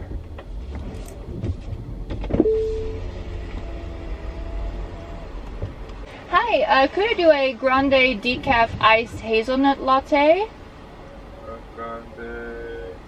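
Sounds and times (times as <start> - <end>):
low rumble inside car: 0.0 - 13.0
power window motor whine: 2.4 - 6.0.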